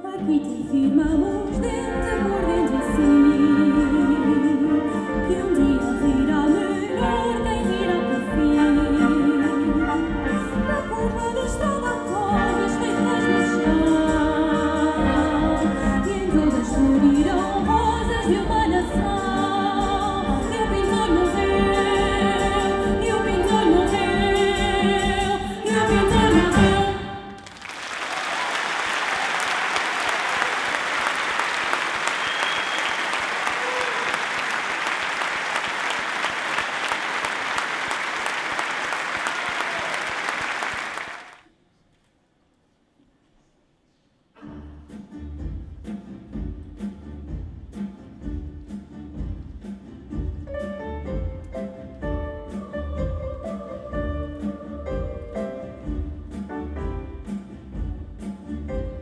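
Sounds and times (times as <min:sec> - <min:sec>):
audience applauding: 0:27.4 - 0:41.5.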